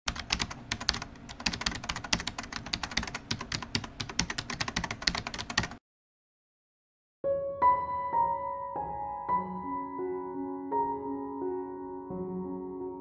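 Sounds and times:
fast keyboard typing: 0.1s - 5.8s.

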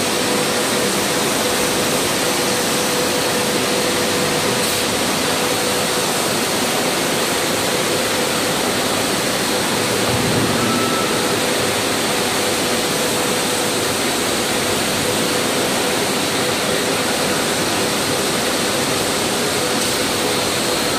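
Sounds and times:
high steady whine: 0.0s - 20.9s
machinery rushing noise: 4.5s - 16.5s.

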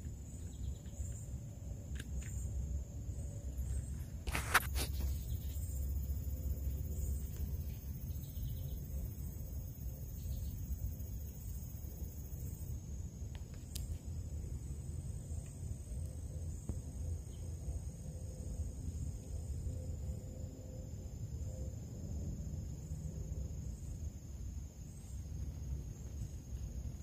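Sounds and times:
insect trill: 0.0s - 27.0s.

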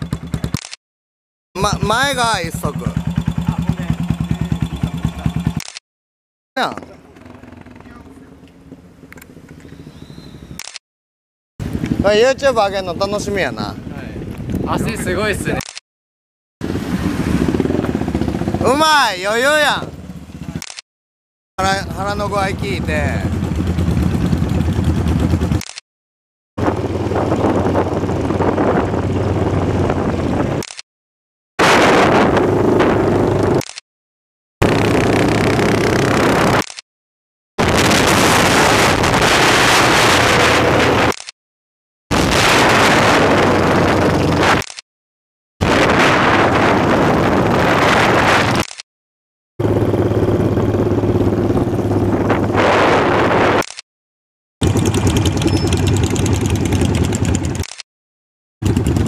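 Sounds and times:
motorcycle engines: 0.0s - 0.6s, 1.6s - 5.6s, 6.6s - 10.6s, 11.6s - 15.6s, 16.6s - 20.6s, 21.6s - 25.6s, 26.6s - 30.6s, 34.6s - 36.6s, 49.6s - 53.6s, 54.6s - 57.7s, 58.6s - 59.0s
wind on microphone: 11.6s - 15.6s, 26.6s - 30.6s, 31.6s - 33.6s, 37.6s - 41.1s, 42.1s - 44.6s, 45.6s - 48.6s, 49.7s - 53.6s.

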